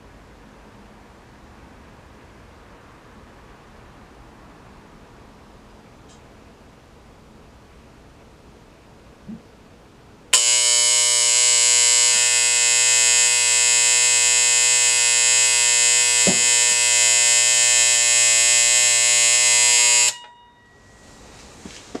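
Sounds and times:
timer alarm buzzer: 10.4s - 21.2s.

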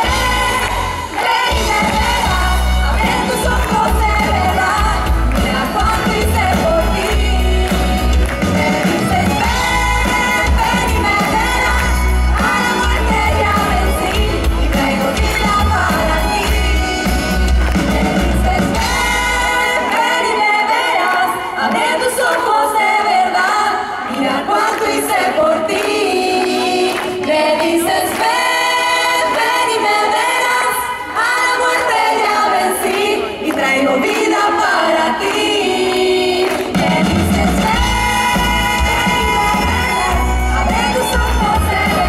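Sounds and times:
bass and drums: 0.0s - 19.7s, 36.7s - 42.0s
women singing together: 0.0s - 42.0s.

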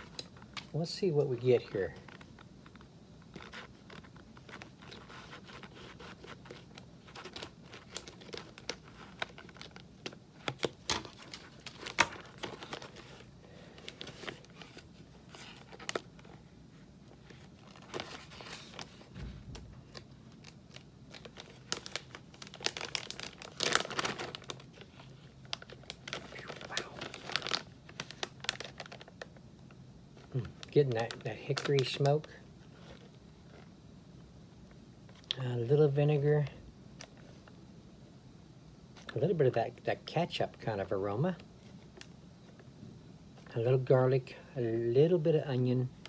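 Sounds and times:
plastic bag crinkling: 1.5s - 29.4s, 30.2s - 33.7s.

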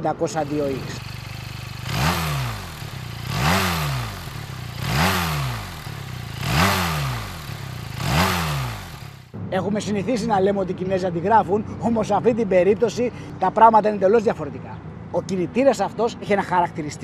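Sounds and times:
motorcycle engine idling and revving: 0.0s - 9.3s.

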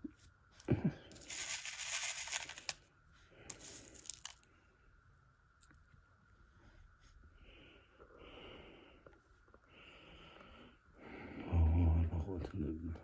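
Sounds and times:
rustling crinkling noise: 0.1s - 4.5s.

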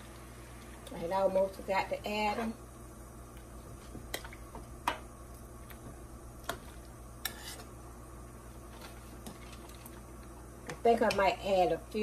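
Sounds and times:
spoon stirring in a pot of water: 3.3s - 7.9s, 8.6s - 11.4s.

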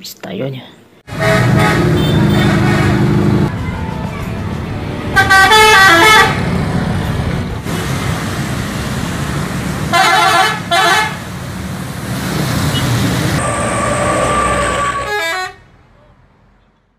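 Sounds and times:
bus engine: 1.0s - 16.9s
traffic noise: 1.0s - 16.9s
bus horn blasts: 1.1s - 4.0s, 5.1s - 6.4s, 9.9s - 11.2s, 13.4s - 15.7s.

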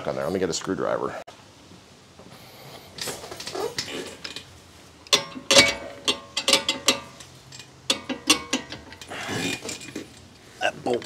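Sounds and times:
metal hand tools clanking: 5.1s - 10.3s.

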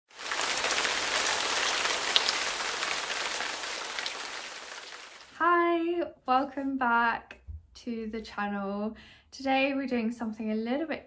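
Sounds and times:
steady rain falling: 0.1s - 5.4s.

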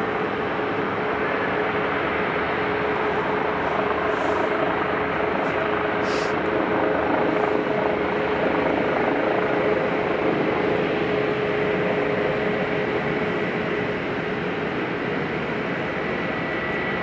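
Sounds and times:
helicopter engine and rotor: 0.0s - 17.0s
turbine whine: 0.0s - 17.0s.

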